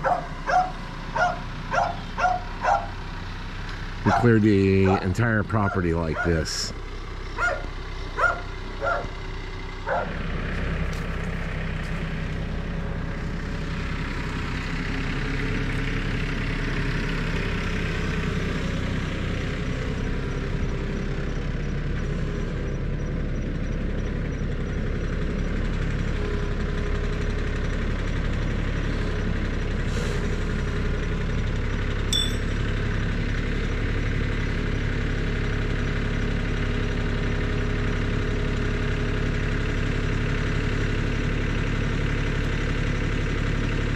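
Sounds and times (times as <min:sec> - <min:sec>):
tractor engine running: 0:00.0 - 0:43.9
metallic clinks: 0:32.1 - 0:32.6.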